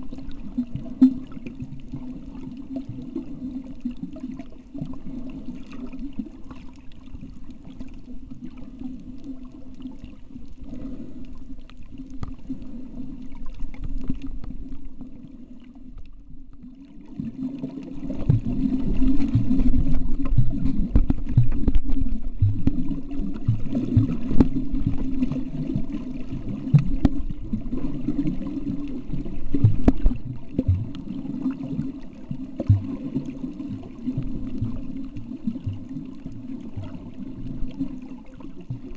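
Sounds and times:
muffled underwater hum: 0.0s - 38.9s
low underwater thumps: 18.1s - 25.9s, 26.6s - 27.9s, 29.3s - 31.2s, 32.6s - 33.0s.

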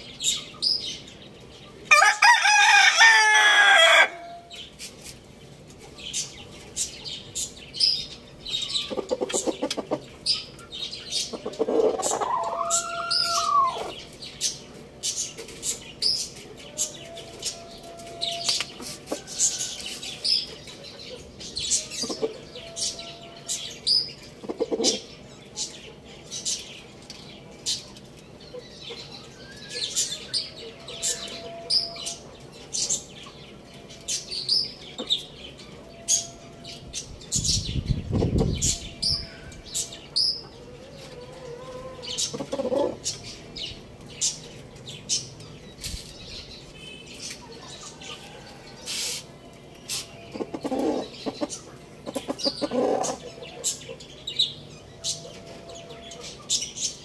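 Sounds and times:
small birds chirping: 0.0s - 2.0s, 4.2s - 57.0s
rooster clucking: 11.2s - 14.0s, 24.4s - 25.1s, 40.5s - 43.0s, 50.3s - 54.0s.

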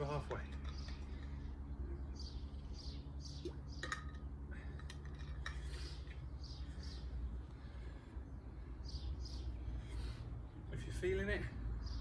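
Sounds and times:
small bird chirping: 0.6s - 4.3s, 5.4s - 10.8s.

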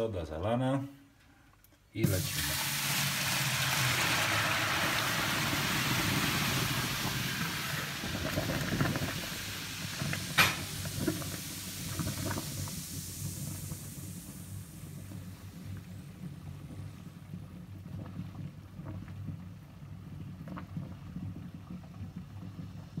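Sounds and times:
water pouring into sink drain: 2.0s - 17.0s.

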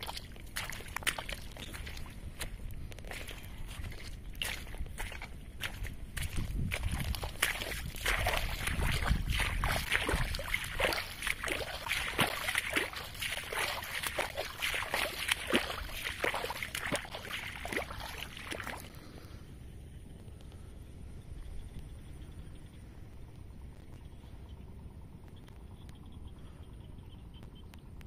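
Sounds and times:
water splashing and sloshing: 0.0s - 19.4s.

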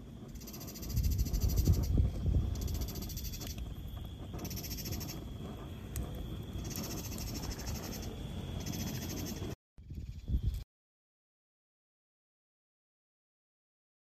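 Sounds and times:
campfire crackling: 0.0s - 9.6s
insects trilling: 0.0s - 10.6s.

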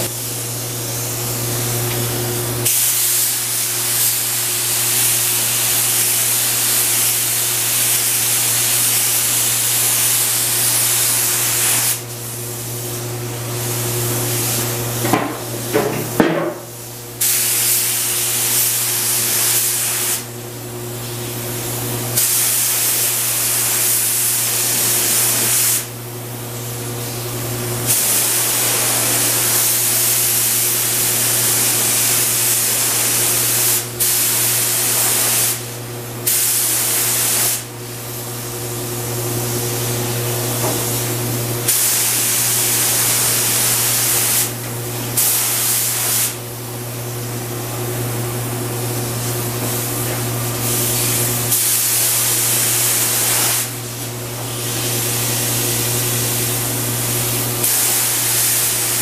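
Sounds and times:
spray gun hissing: 2.6s - 12.4s, 16.7s - 20.3s, 22.2s - 25.9s, 27.9s - 37.7s, 40.8s - 46.4s, 50.6s - 53.9s, 57.2s - 59.0s.

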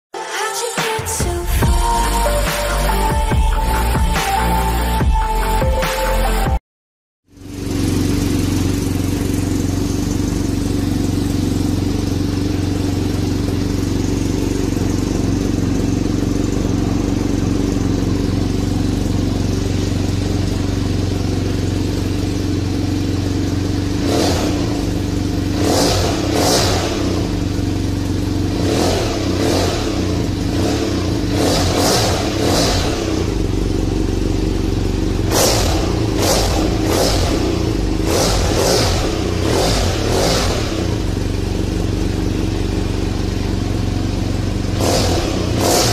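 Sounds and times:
motorcycle engine idling: 7.3s - 45.9s
quick throttle revs: 23.9s - 27.4s, 28.5s - 33.5s, 35.2s - 41.3s, 44.7s - 45.9s.

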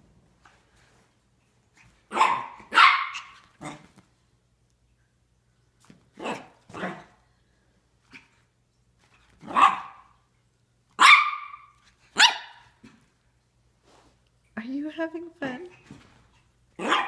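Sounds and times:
small dogs barking: 2.1s - 3.8s, 9.4s - 10.2s, 11.0s - 12.7s, 16.8s - 17.0s.

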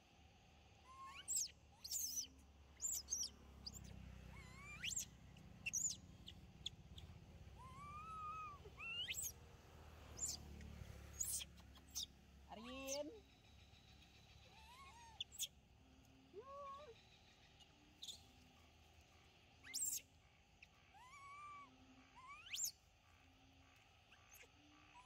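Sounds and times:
monkey coo: 7.5s - 9.3s, 14.4s - 15.4s, 20.9s - 22.7s
monkeys squeaking: 7.6s - 9.3s, 11.2s - 13.0s.

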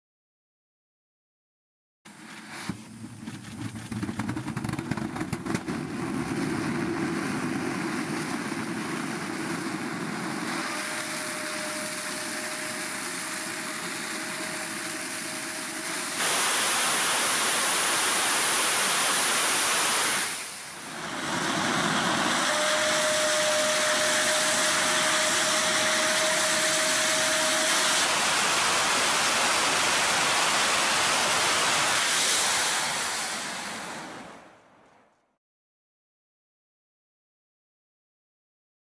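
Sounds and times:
rocket engine exhaust roar: 3.7s - 34.6s
thin steady whistle: 10.2s - 16.3s, 21.0s - 30.4s.

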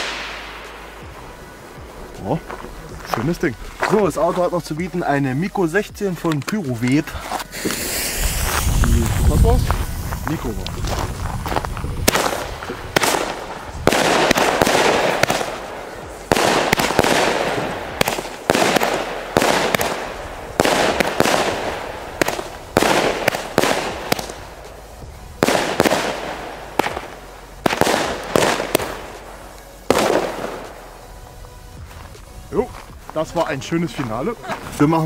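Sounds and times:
fireworks bangs: 0.0s - 3.2s, 7.5s - 30.9s
fireworks hiss: 0.0s - 35.0s.

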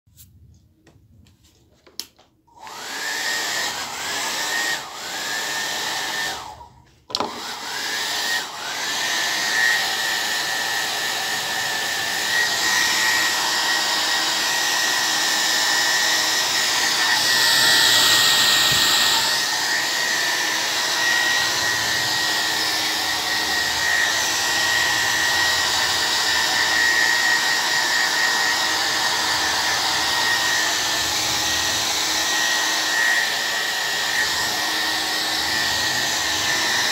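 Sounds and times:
blow dryer whine: 2.5s - 36.9s.

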